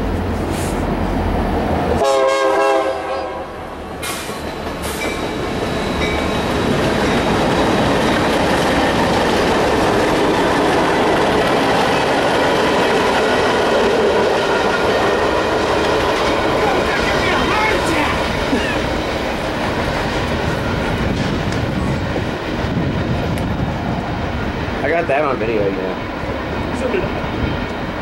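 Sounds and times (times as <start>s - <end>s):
freight train rumbling on rails: 0.0s - 28.0s
train horn blast: 2.0s - 3.8s.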